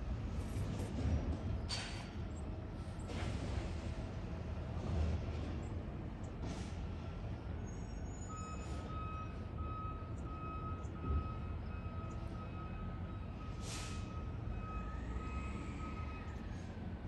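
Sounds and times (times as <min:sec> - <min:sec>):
reversing alarm beeping: 0:07.8 - 0:16.9
air brake hisses: 0:13.5 - 0:14.2.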